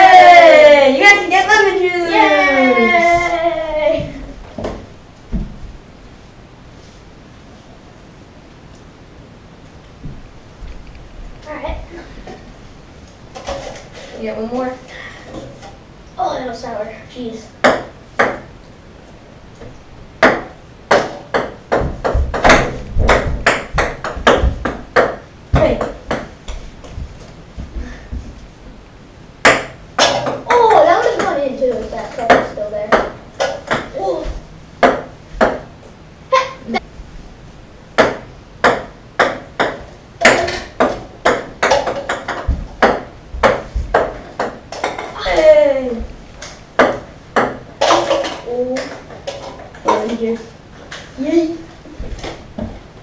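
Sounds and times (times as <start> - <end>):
ping-pong ball bouncing on wood: 17.6 - 18.5, 20.2 - 26.3, 29.4 - 30.5, 32.2 - 34.0, 34.8 - 35.7, 38.0 - 45.1, 46.8 - 48.2.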